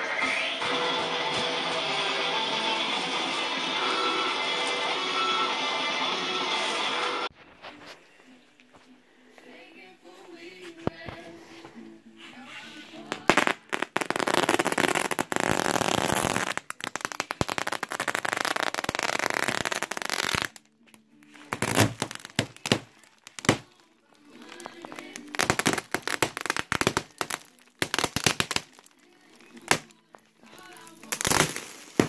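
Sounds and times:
plastic wrapping crinkling: 13.1s - 32.0s.

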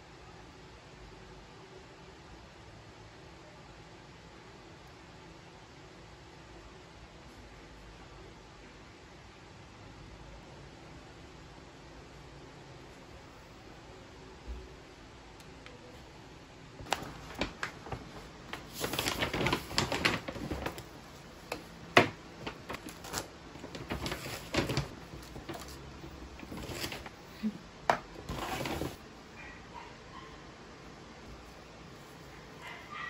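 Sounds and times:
plastic packaging rustling: 16.8s - 29.0s.

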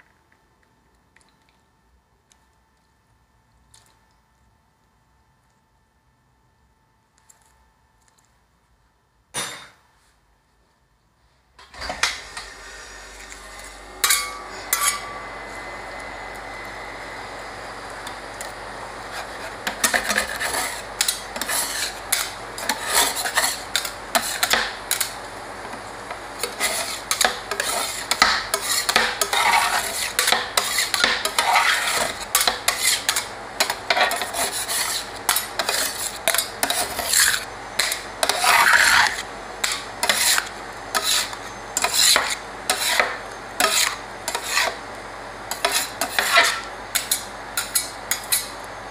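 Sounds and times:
steady low hum: 12.0s - 48.9s
metal spatulas chopping and scraping: 14.0s - 15.1s, 19.1s - 25.8s, 26.4s - 44.8s, 45.5s - 48.6s.

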